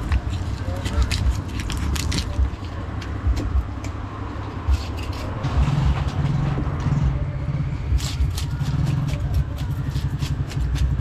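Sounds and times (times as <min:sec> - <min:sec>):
steady low hum: 0:00.0 - 0:08.5
continuous low rumble: 0:00.0 - 0:11.0.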